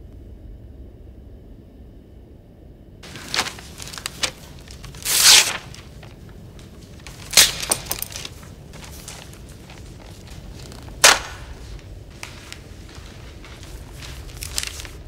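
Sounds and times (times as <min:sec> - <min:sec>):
paper rustling and crinkling: 0:03.0 - 0:15.0
pencils tapping and scratching: 0:03.0 - 0:15.0.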